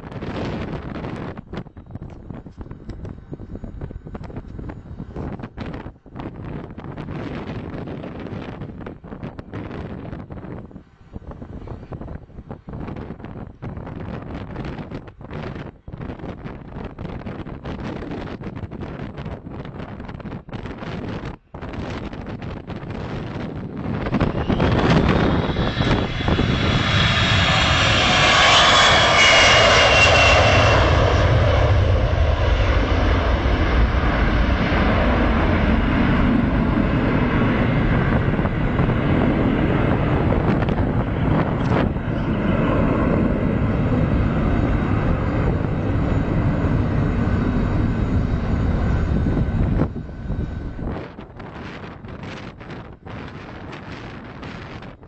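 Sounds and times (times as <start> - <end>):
high jet whine falling in pitch: 0.0 - 55.0
jet engine roar: 0.0 - 55.0.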